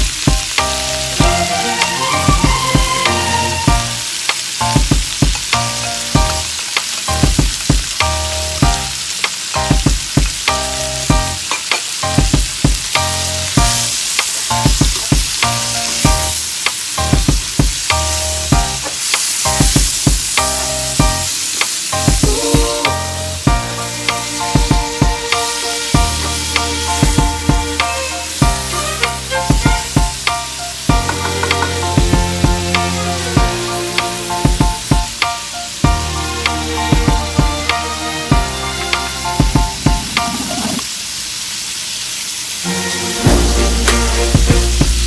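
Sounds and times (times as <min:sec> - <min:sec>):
food sizzling in a wok: 0:00.0 - 0:45.0
spatula scraping a wok: 0:39.8 - 0:40.9.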